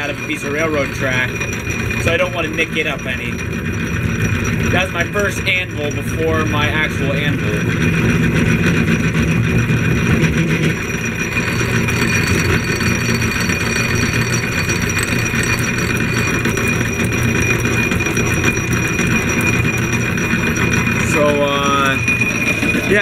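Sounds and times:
drill press whining: 0.0s - 23.0s
low hum: 7.6s - 23.0s.

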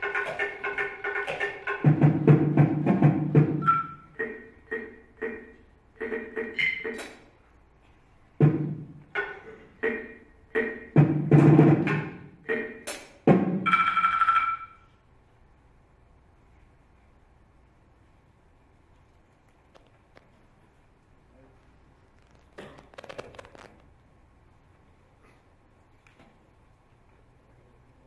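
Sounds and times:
ringing clear tone: 3.6s - 4.2s, 13.6s - 15.0s
mallet strikes on small percussion: 9.2s - 14.8s.

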